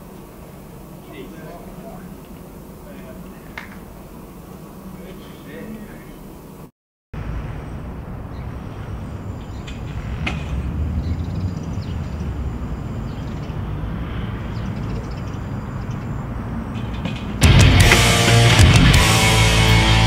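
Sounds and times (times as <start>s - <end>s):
city traffic rumble: 7.2s - 20.0s
heavy rock music: 17.4s - 20.0s.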